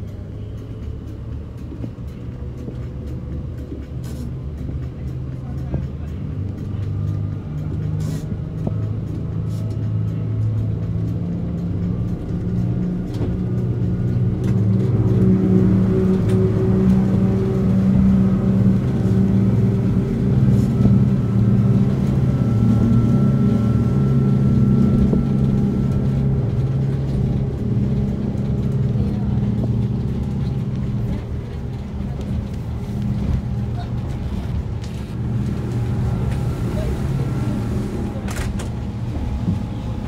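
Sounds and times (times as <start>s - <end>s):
boat engines droning: 0.0s - 40.0s
water rushing along hull: 0.0s - 40.0s.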